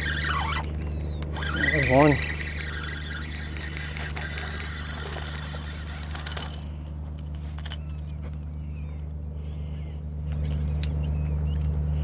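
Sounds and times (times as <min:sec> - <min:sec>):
fishing reel clicks: 0:00.0 - 0:06.7
seabirds chirping: 0:00.0 - 0:12.0
steady low hum: 0:00.0 - 0:12.0.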